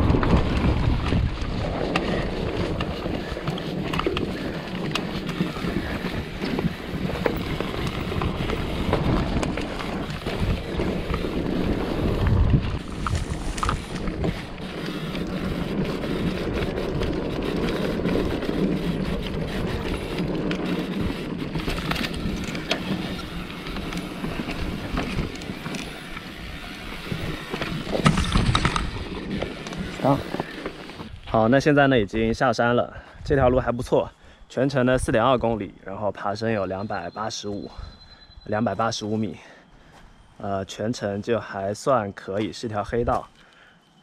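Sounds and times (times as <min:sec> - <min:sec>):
bike rattling over bumps: 0:00.0 - 0:32.3
wind noise on microphone: 0:00.0 - 0:35.8.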